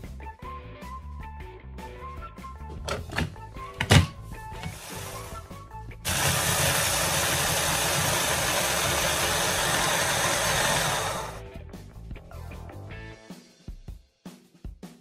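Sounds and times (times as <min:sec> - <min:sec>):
hand blender whirring: 0:02.9 - 0:11.4.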